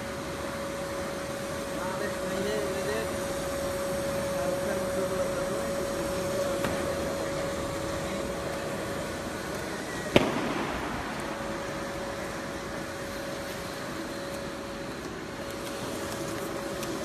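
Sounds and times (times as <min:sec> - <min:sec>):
constant machine tone: 0:00.0 - 0:17.0
machine humming: 0:00.0 - 0:17.0.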